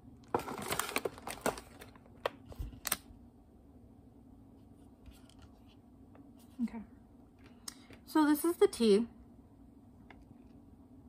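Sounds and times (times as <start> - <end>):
plastic packaging rustling: 0.2 - 3.1.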